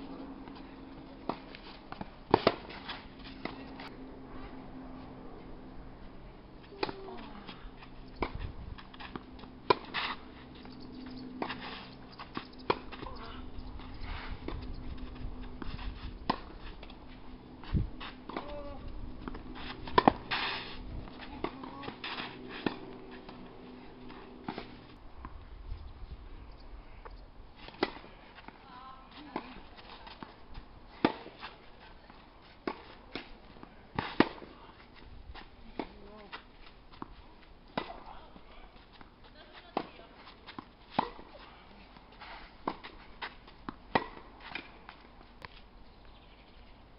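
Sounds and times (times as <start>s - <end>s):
rackets striking tennis ball: 1.2s - 3.9s, 6.7s - 13.9s, 18.0s - 24.8s, 27.7s - 28.6s, 29.2s - 31.6s, 35.7s - 38.2s, 39.0s - 41.4s, 42.6s - 45.5s
tennis ball bouncing: 1.2s - 3.9s, 6.7s - 13.9s, 14.5s - 17.0s, 18.0s - 25.4s, 27.7s - 28.6s, 29.3s - 34.8s, 35.7s - 38.3s, 38.9s - 41.4s, 42.6s - 45.5s
shoes scuffing on clay: 6.6s - 25.0s.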